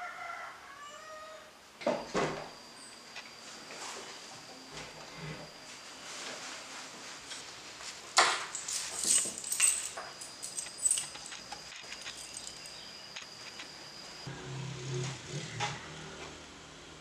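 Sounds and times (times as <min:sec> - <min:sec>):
keys clacking on wooden table: 0:08.2 - 0:13.7
keys jingling: 0:08.5 - 0:13.7.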